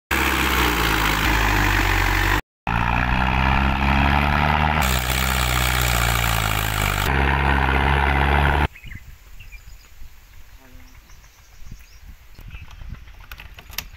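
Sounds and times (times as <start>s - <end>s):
tractor diesel engine running: 0.1s - 8.7s.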